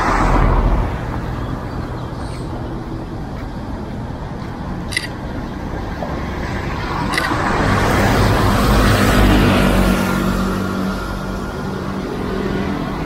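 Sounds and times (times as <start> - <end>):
road traffic: 0.0 - 13.0
vehicle approaching: 0.0 - 13.0
camera shutter clicks: 4.9 - 5.2, 7.1 - 7.4.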